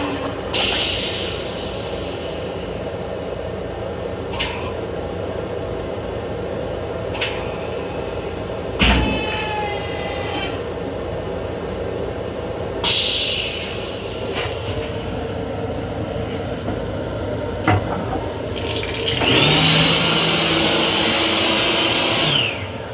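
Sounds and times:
faucet water running: 18.5s - 19.8s.

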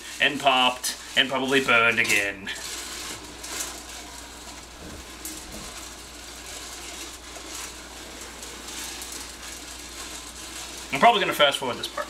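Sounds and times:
popcorn kernels rattling in pot: 0.0s - 12.0s.

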